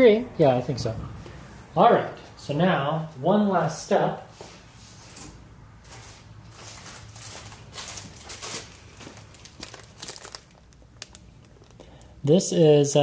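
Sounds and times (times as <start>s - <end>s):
cloth crinkling: 5.8s - 11.8s.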